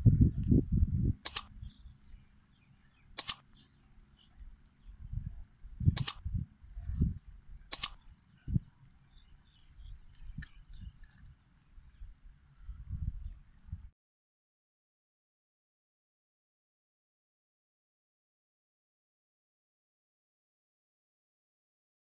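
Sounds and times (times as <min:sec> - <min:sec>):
gusty wind rumble: 0:00.0 - 0:02.2, 0:04.9 - 0:07.7, 0:08.4 - 0:08.7, 0:11.8 - 0:13.9
mouse click sound effects: 0:01.2 - 0:01.5, 0:03.2 - 0:03.4, 0:06.0 - 0:06.2, 0:07.7 - 0:08.0.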